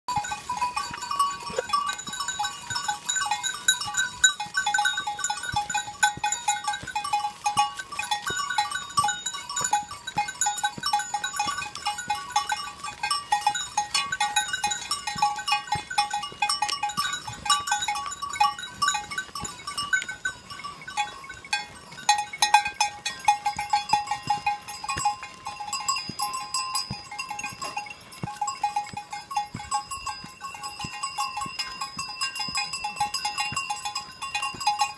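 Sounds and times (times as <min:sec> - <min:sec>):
goat bells clanking: 0:00.1 - 0:34.9.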